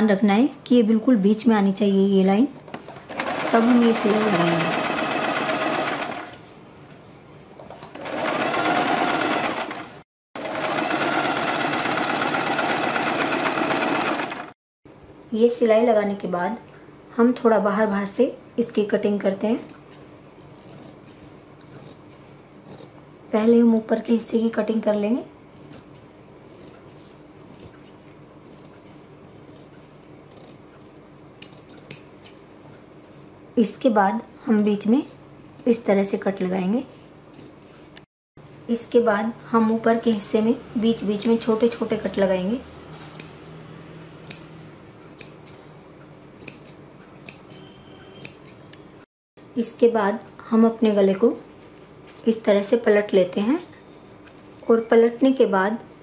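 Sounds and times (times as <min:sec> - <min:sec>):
sewing machine stitching: 0:03.1 - 0:06.4, 0:07.9 - 0:14.6
shears cutting fabric: 0:20.4 - 0:24.0, 0:25.4 - 0:32.2
sharp click: 0:44.3 - 0:45.6, 0:46.4 - 0:48.8.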